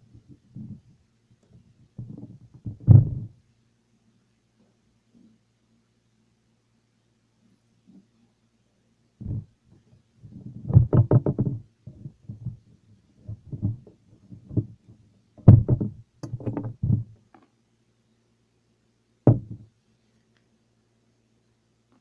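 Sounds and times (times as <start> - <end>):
knocks and taps on cardboard: 10.7 - 12.6, 13.3 - 17.1, 19.3 - 19.7.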